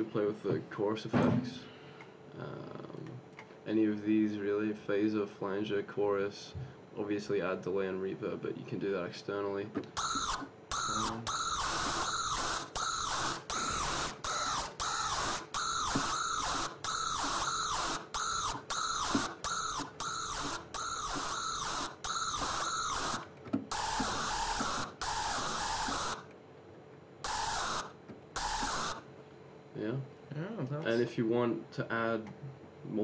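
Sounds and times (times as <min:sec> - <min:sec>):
distorted synth screech lead: 0:10.0 - 0:26.2, 0:27.2 - 0:29.0.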